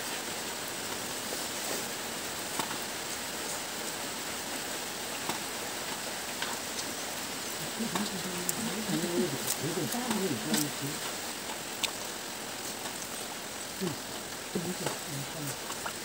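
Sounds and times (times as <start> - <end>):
rain hissing: 0.0 - 16.0
person speaking: 7.6 - 11.4, 12.6 - 16.0.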